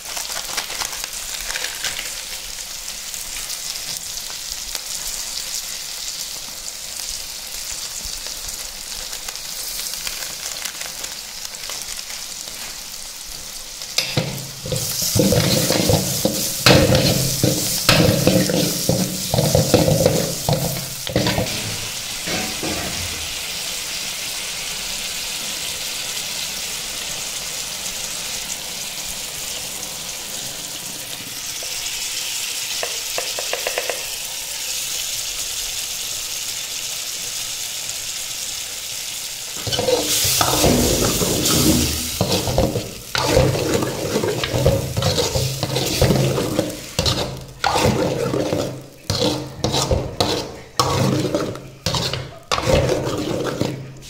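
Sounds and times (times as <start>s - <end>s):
vegetables sizzling in oil: 0.0s - 54.0s
ladle scraping and stirring gravy: 14.0s - 23.3s, 39.6s - 54.0s.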